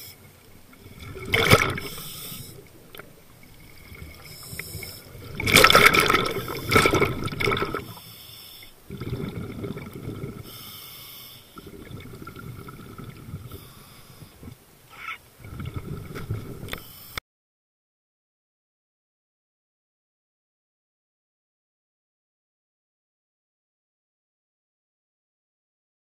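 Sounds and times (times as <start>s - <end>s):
exhaled bubbles rushing: 0.6s - 8.0s, 8.8s - 10.5s, 11.6s - 13.5s, 15.4s - 16.8s
diver breathing through regulator: 0.9s - 2.9s, 3.6s - 5.5s, 6.1s - 14.6s.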